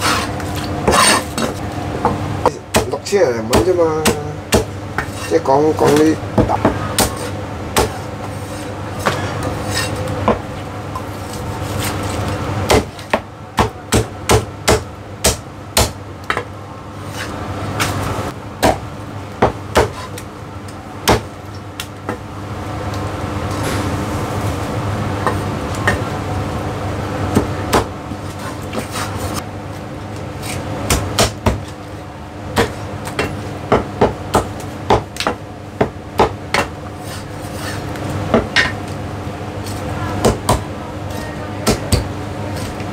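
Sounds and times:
cleaver chopping on wooden block: 12.7 - 16.4, 19.4 - 20.1.

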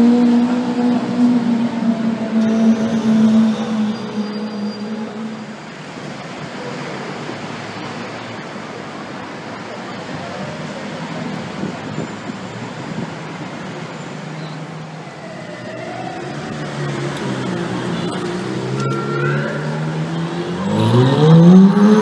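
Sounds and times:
city street traffic: 0.0 - 22.0
sports car engines at low speed: 16.9 - 22.0.

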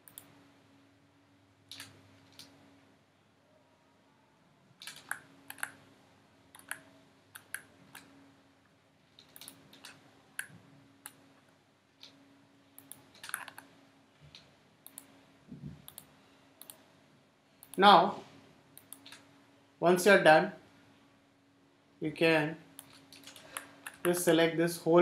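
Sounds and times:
faint low hum: 0.0 - 25.0
mouse and keyboard clicks: 4.8 - 5.8, 6.5 - 8.1, 9.2 - 11.2, 12.8 - 13.7.

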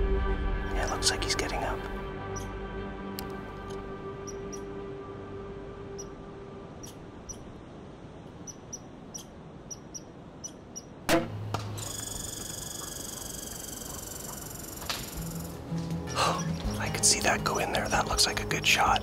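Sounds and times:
faint small ticks: 11.9 - 16.7.

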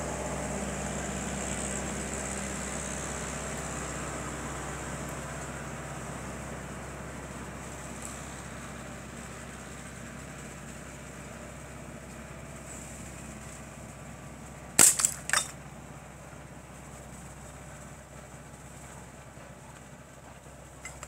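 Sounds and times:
glass bottle shattering: 14.8 - 15.5.

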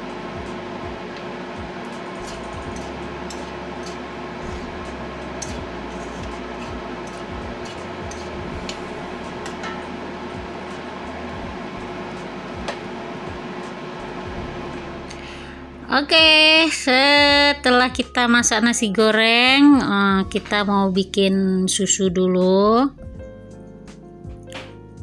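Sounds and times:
constant hum: 0.0 - 22.6
metal spatula scraping a wok: 1.8 - 11.2.

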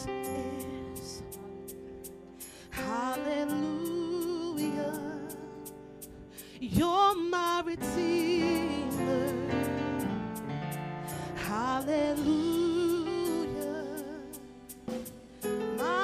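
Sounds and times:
woman singing: 0.0 - 2.0, 2.7 - 5.7, 6.6 - 9.9, 11.3 - 14.6, 15.6 - 16.0
keyboard chords: 0.0 - 16.0
light ticking beat: 0.0 - 16.0.

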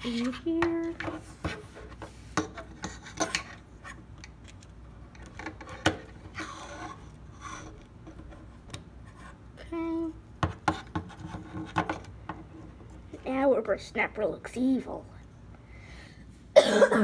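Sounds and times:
plastic scraping on plastic: 0.0 - 9.4, 10.4 - 13.2.

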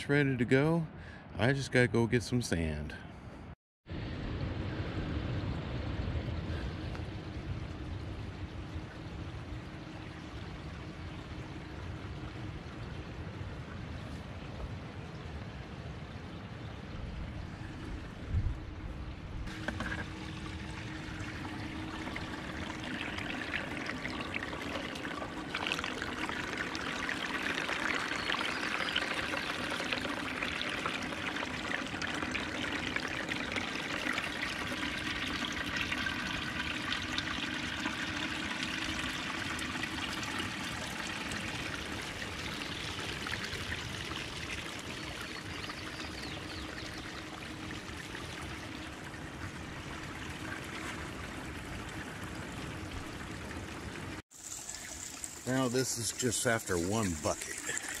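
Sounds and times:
faint steady hum: 0.1 - 58.0
water pouring through sluice: 19.5 - 58.0.

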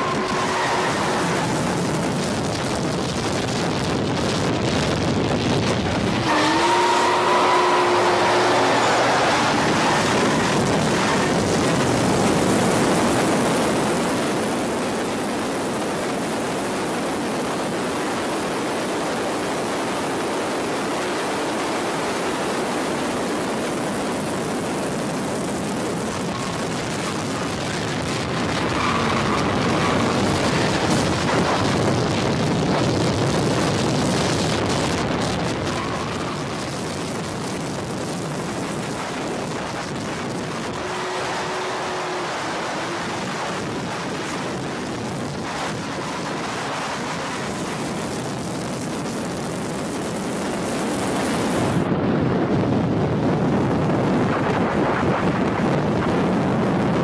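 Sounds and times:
cars engine and tyre rush: 0.0 - 57.0
rising engine note: 6.1 - 12.8, 39.7 - 44.6.

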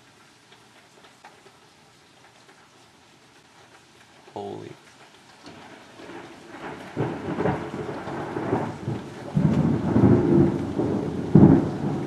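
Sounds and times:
steady rain: 0.0 - 12.0
thunder rumbling and clapping: 5.5 - 12.0.

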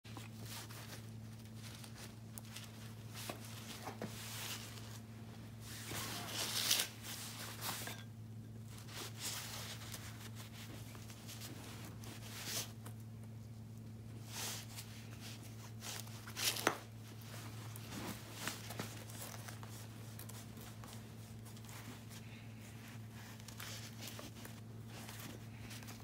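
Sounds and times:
rope rustling and scraping: 0.1 - 26.0
steady low hum: 0.1 - 26.0.

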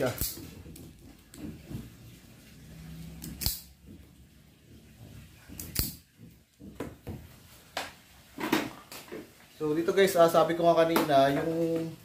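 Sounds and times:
wire stripper snapping: 3.2 - 3.7, 5.6 - 6.0.

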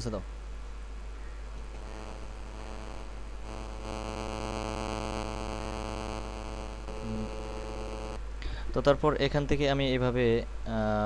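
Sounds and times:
electrical mains hum: 0.0 - 11.0
buzz with hiss: 1.6 - 8.6.

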